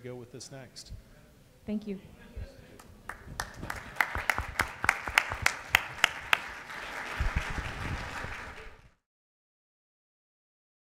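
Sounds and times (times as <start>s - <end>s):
nearby person clapping: 2.8s - 8.9s
audience applauding: 3.1s - 9.0s.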